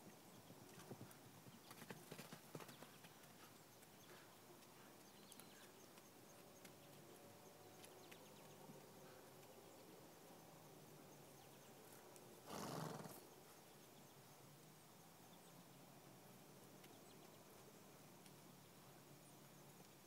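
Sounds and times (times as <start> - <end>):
horse snorting: 12.5 - 13.2.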